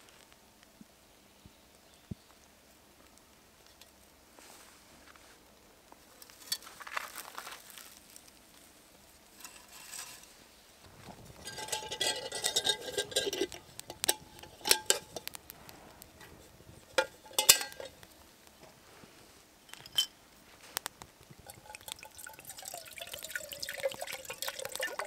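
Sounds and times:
fire crackling and popping: 1.6s - 25.0s
metal pot clattering: 10.9s - 15.4s, 16.2s - 18.0s, 19.7s - 20.1s, 21.4s - 25.0s.

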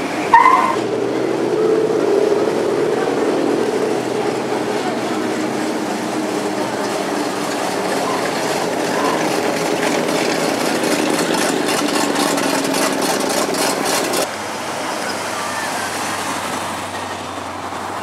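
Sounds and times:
car engines rumbling past: 0.0s - 18.0s
quick ticking rattle: 7.4s - 14.2s.

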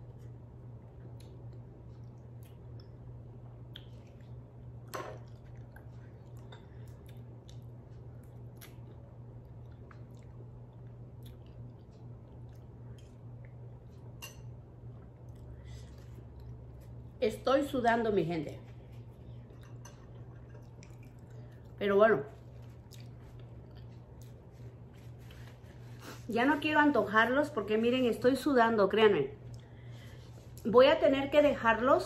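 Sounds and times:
steady low hum: 0.0s - 32.0s
person chewing food: 0.2s - 17.2s, 18.8s - 21.8s, 22.4s - 25.0s.

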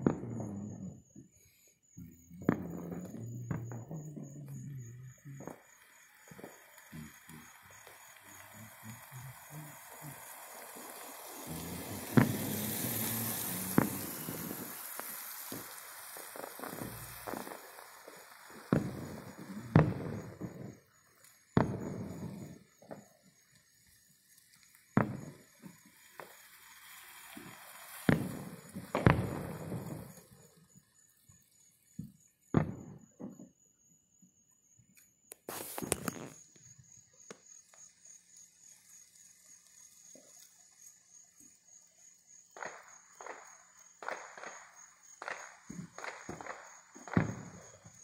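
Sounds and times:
distant fireworks bangs: 0.0s - 23.1s, 24.9s - 30.5s, 32.0s - 33.6s, 42.5s - 48.0s
fireworks crackle: 0.0s - 33.5s, 35.3s - 48.0s.

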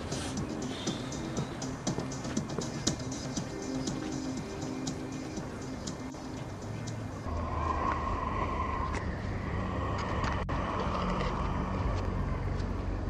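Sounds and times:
background music: 0.0s - 7.3s
low outdoor rumble: 0.0s - 13.0s.

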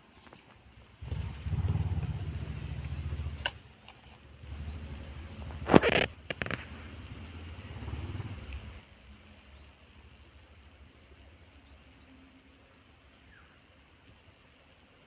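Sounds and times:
low rumble: 1.0s - 3.6s
faint steady hush: 6.6s - 15.0s.

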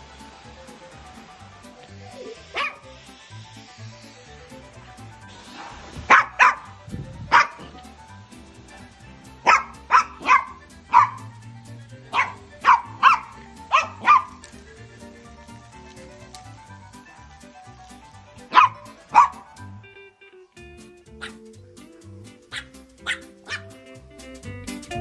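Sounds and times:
background music: 0.0s - 25.0s
small dog barking: 2.2s - 2.9s, 6.1s - 7.8s, 9.4s - 11.3s, 12.1s - 14.4s, 18.5s - 19.6s, 21.2s - 21.4s, 22.5s - 23.7s.

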